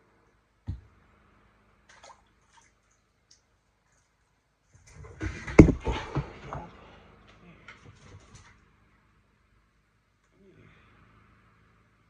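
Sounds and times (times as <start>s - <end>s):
knocks: 5.2s - 6.7s.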